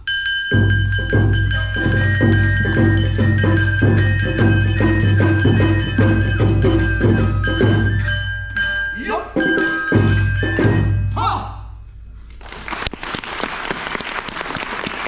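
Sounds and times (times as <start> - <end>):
ringing hand gong: 0.0 - 11.2
shamisen: 0.0 - 11.4
bamboo flute melody: 0.0 - 11.6
drums at a brisk beat: 0.3 - 11.4.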